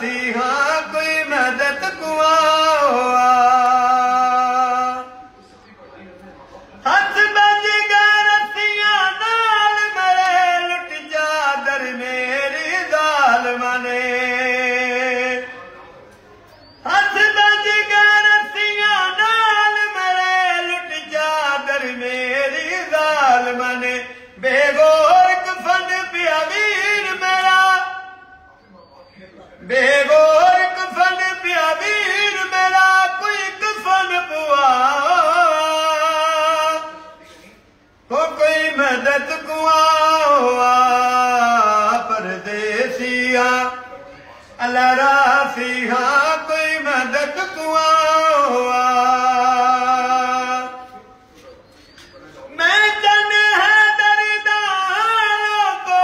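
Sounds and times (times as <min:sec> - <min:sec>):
elderly man singing lament: 0:00.0 - 0:05.1, 0:06.9 - 0:15.5, 0:16.8 - 0:28.2, 0:29.6 - 0:37.0, 0:38.1 - 0:43.9, 0:44.6 - 0:50.9, 0:52.5 - 0:56.0.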